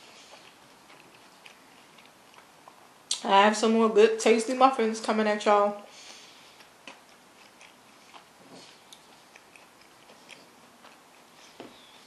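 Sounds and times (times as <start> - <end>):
quiet chewing: 0.0 - 3.2, 5.9 - 12.0.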